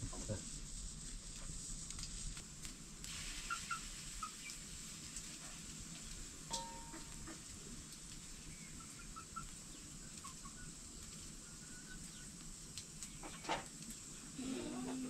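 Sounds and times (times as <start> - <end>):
steady high hiss: 0.0 - 15.0
light ringing clink: 6.5 - 7.4
faint bird chirps: 8.0 - 12.4.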